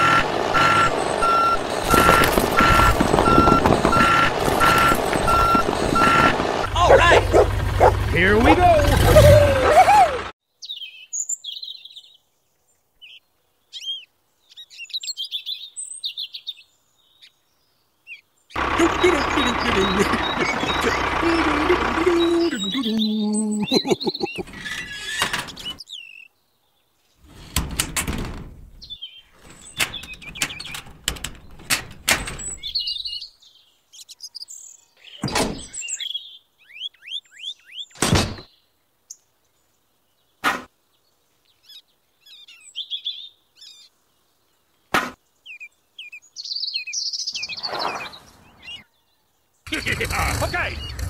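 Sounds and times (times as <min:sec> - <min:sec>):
small birds chirping: 0:10.5 - 0:27.3, 0:28.7 - 0:51.0.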